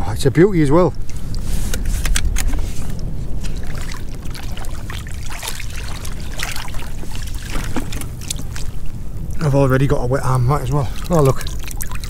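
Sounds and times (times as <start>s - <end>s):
water splashing and sloshing: 0.8s - 12.0s
rain falling on seawater: 2.8s - 12.0s.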